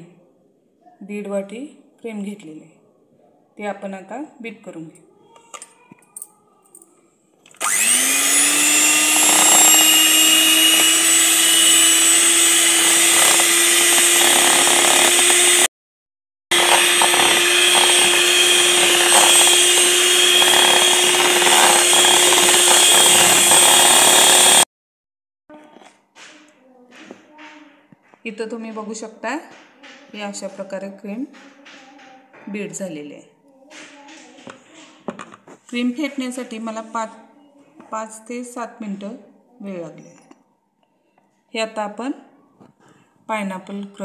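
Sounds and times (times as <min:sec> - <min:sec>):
electric hand mixer whirring: 0:07.5 - 0:15.7, 0:16.5 - 0:24.7.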